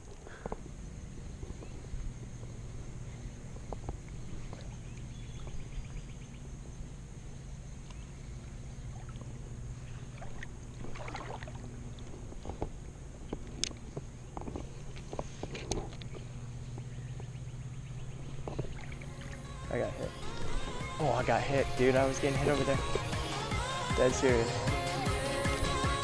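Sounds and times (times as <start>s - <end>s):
steady low rumble: 0.0s - 25.3s
river water sloshing and lapping: 1.6s - 21.4s.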